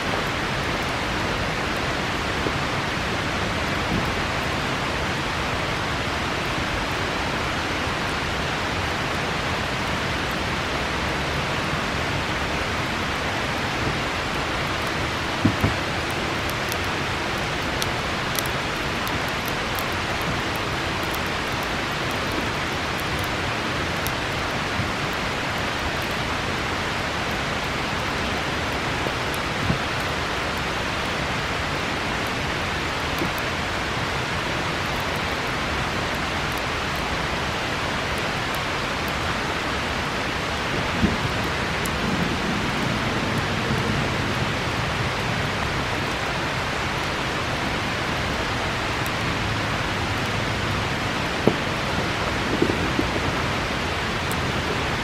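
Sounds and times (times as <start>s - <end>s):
bonfire crackling: 0.0s - 55.0s
river flowing: 0.0s - 55.0s
soft knock from bonfire: 52.5s - 53.2s.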